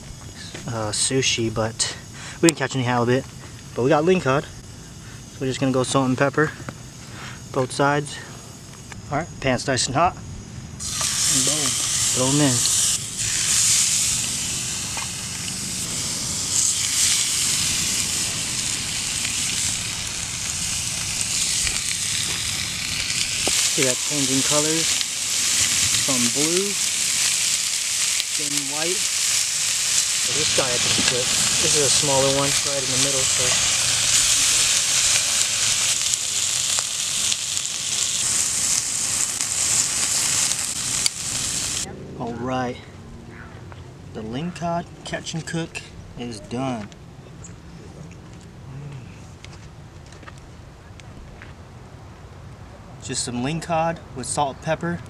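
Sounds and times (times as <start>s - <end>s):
fish sizzling in a pan: 10.8s - 41.9s.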